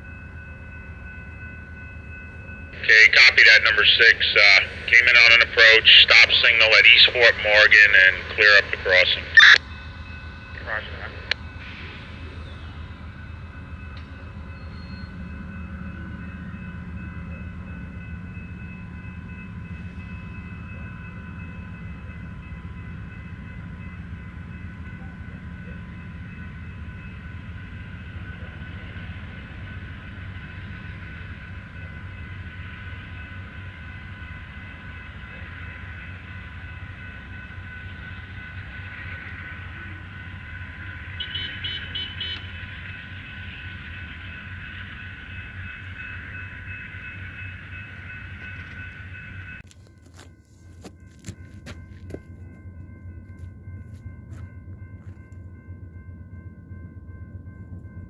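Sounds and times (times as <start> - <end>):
train cars rumbling past: 0.0 - 58.0.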